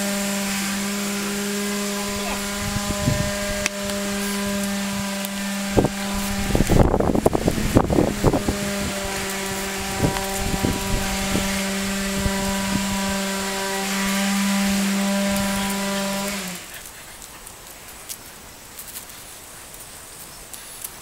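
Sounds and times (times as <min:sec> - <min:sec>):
steady motor hum: 0:00.0 - 0:16.7.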